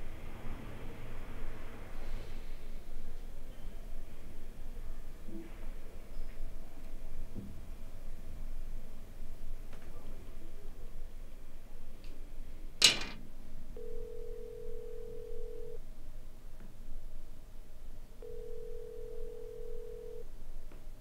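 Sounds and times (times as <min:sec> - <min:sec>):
telephone ringback beeps: 0:13.8 - 0:15.8, 0:18.2 - 0:20.2.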